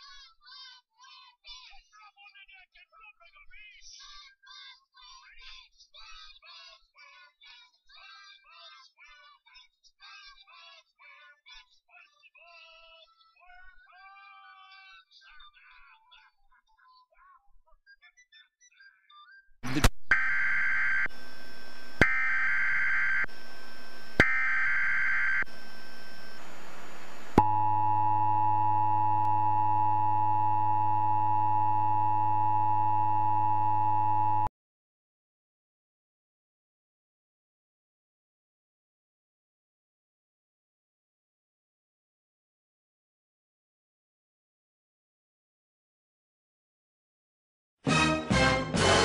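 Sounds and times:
faint singing from television: 0.0 - 19.5
alternating electronic tones: 19.6 - 34.5
clicks: 19.6 - 34.5
low hum: 19.6 - 34.5
steady test tone: 19.6 - 34.5.

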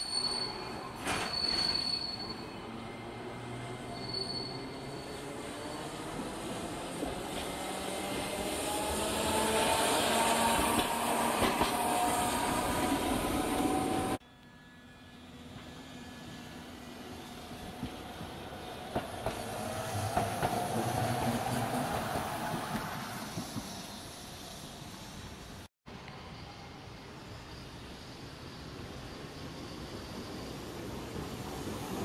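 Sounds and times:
streetcar motor whining: 2.1 - 25.5.

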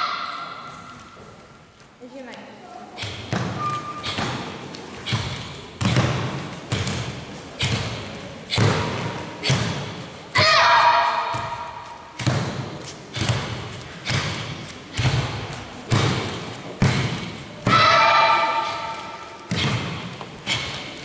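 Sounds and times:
child's high kiai shout: 0.0 - 0.7, 10.4 - 11.7, 17.6 - 19.1
thuds of karate techniques: 5.1 - 10.6, 19.5 - 20.9.

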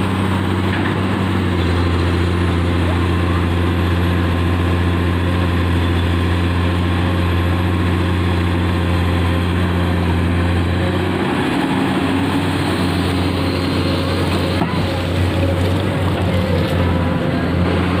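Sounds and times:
excavator diesel engine drone: 0.0 - 18.0.

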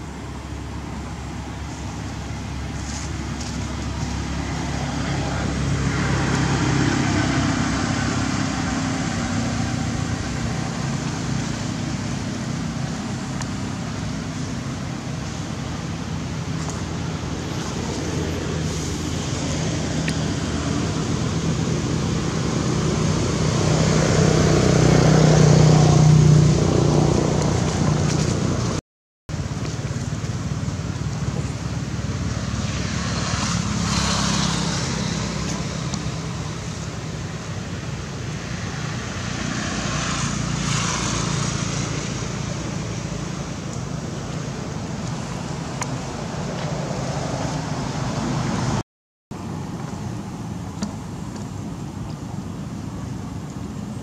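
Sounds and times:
outdoor rumble and hiss: 0.0 - 54.0.

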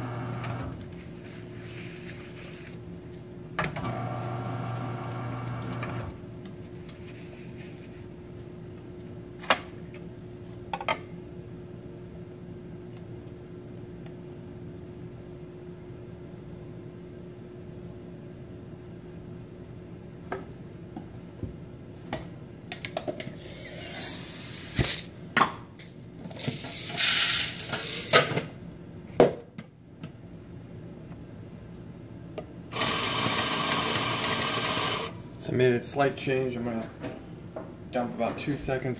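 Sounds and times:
coffee grinder running: 32.7 - 35.2.

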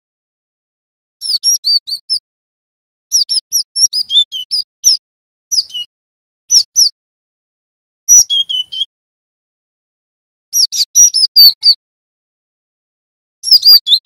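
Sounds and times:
bird whistled calls: 1.2 - 2.2, 3.1 - 5.9, 6.5 - 7.0, 8.1 - 8.9, 10.6 - 11.8, 13.4 - 14.0.

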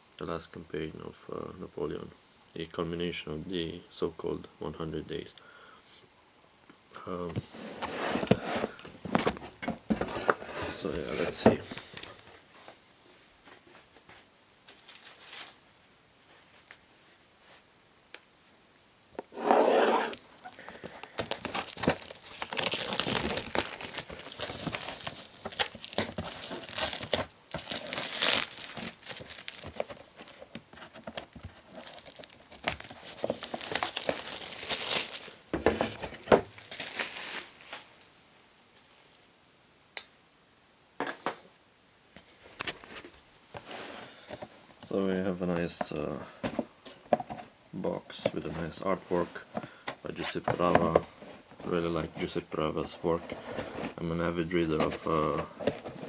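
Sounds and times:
plastic wrap crinkling: 14.7 - 15.6, 20.1 - 38.0
plastic wrap tearing: 19.4 - 35.4, 36.6 - 37.9.

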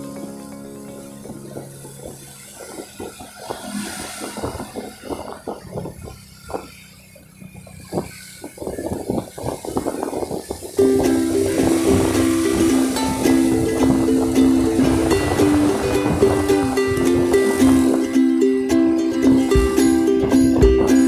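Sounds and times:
low thumps and rumbles: 0.0 - 21.0
traffic on wet road: 0.0 - 21.0.

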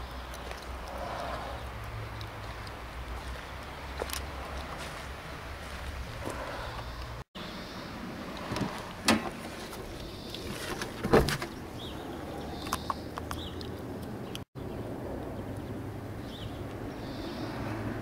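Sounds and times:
car bonnet clunk: 8.5 - 9.9.

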